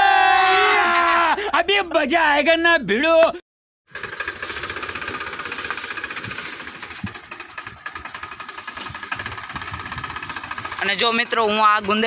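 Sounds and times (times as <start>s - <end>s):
tractor diesel engine clattering: 3.9s - 12.0s.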